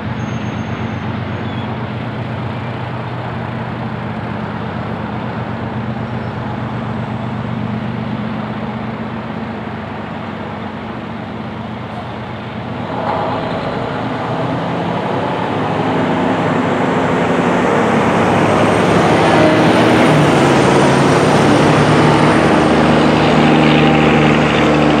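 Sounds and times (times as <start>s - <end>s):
heavy vehicle engine humming: 0.0s - 25.0s.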